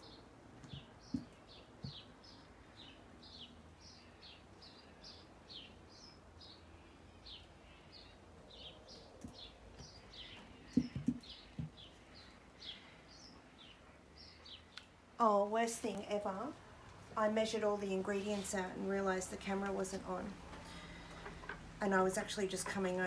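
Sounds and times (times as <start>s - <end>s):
bird chirping: 0.0s - 14.9s.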